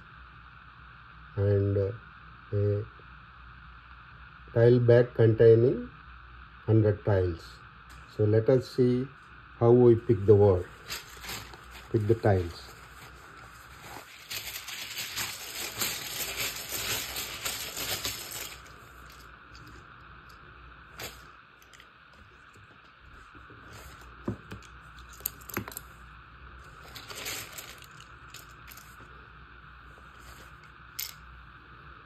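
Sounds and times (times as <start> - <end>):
tiles clattering in a cloth bag: 26.7 - 29.0.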